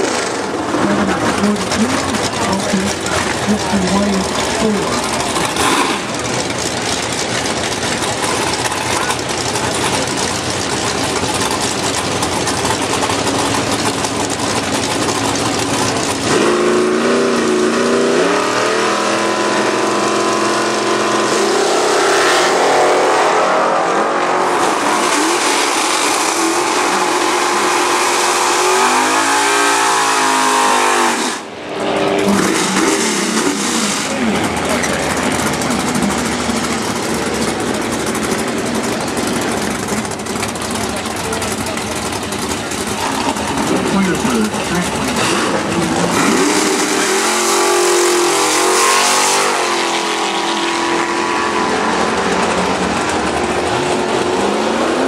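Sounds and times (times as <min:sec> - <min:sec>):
engine revving: 0:00.0 - 0:55.0
race car engines running: 0:00.0 - 0:55.0
track noise: 0:00.0 - 0:55.0
voices: 0:00.8 - 0:06.7, 0:33.8 - 0:38.2, 0:40.5 - 0:46.2.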